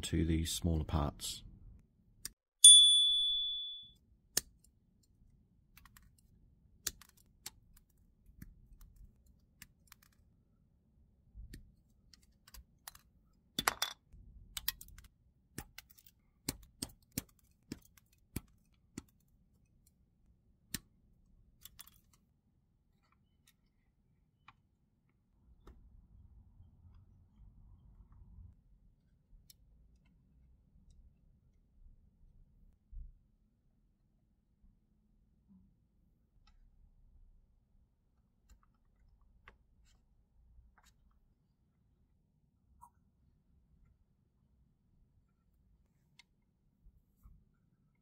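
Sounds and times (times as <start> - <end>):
bright chime: 2.6 - 3.9.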